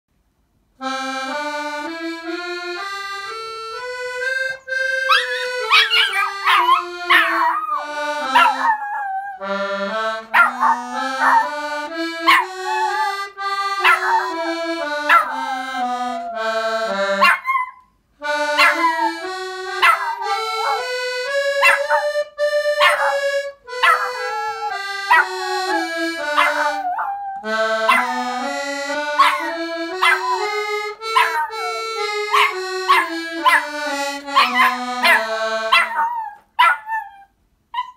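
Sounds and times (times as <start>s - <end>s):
accordion playing a scale: 0.8s - 8.8s, 9.4s - 17.4s, 18.2s - 36.1s
small dog yipping and barking: 5.1s - 9.4s, 10.3s - 11.5s, 12.3s - 13.1s, 13.8s - 14.3s, 15.1s - 15.5s, 17.2s - 17.9s, 18.6s - 19.1s, 19.8s - 20.8s, 21.6s - 22.0s, 22.8s - 23.2s, 23.8s - 25.3s, 26.4s - 28.2s, 29.2s - 30.5s, 31.2s - 33.6s, 34.4s - 37.9s.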